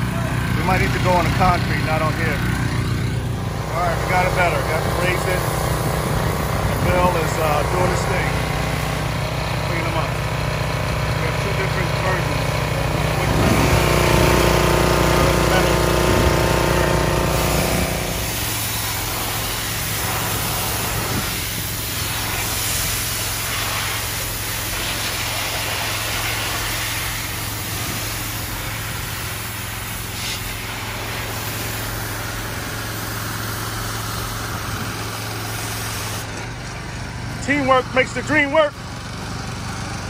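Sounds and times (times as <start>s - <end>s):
small engine hum: 0.0s - 40.0s
water jet hissing on metal: 14.5s - 36.3s.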